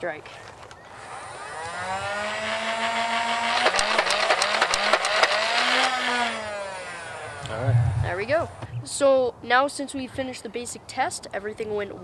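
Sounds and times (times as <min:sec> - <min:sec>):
flywheel motors whining: 0:00.9 - 0:07.7
toy darts firing in a rapid burst: 0:03.4 - 0:06.3.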